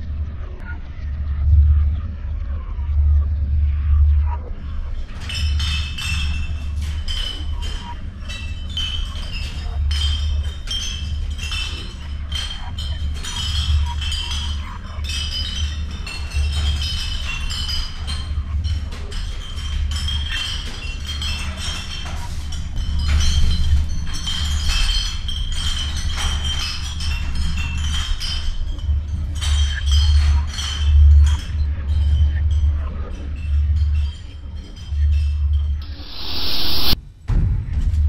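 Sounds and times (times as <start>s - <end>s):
low pulsing drone: 0.0s - 6.1s, 35.0s - 37.8s
dense clinking clatter: 5.2s - 35.3s.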